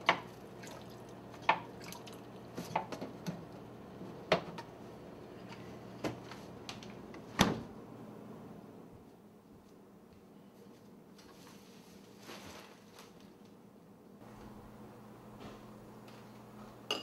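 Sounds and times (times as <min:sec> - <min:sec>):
water trickling into a bowl: 0:00.4 - 0:02.5.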